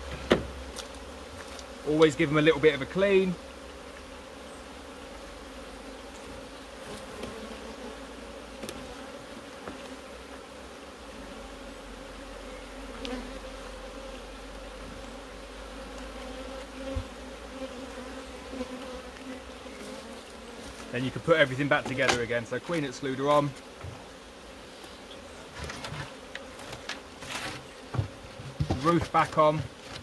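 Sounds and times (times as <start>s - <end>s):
bees buzzing: 0.0s - 30.0s.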